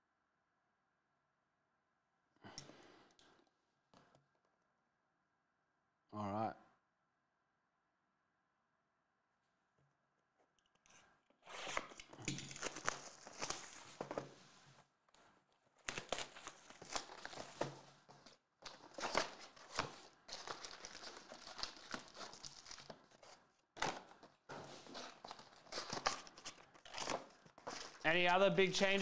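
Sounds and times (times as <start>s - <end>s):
cardboard box tearing and crinkling: 15.9s - 17.6s, 24.8s - 28.0s.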